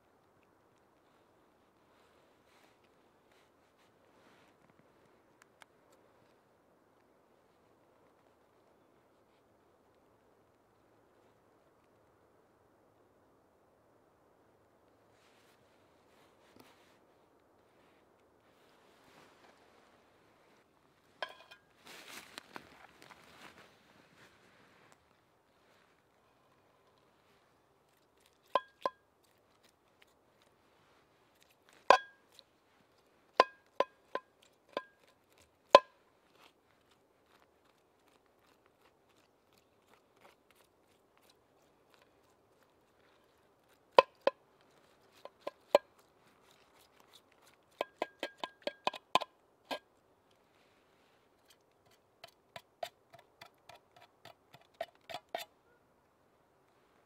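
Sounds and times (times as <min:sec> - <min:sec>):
knife cutting tin can: 0:52.2 - 0:55.5.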